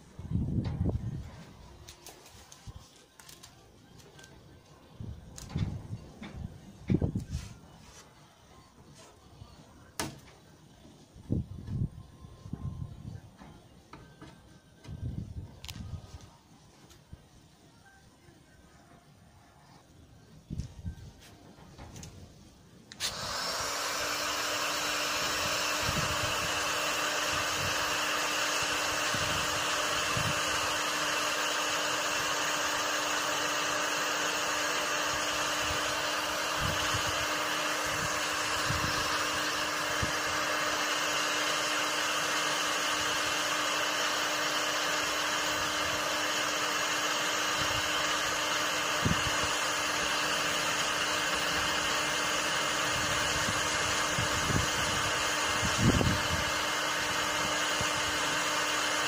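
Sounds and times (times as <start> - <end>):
heat gun blowing air: 22.9 - 59.0.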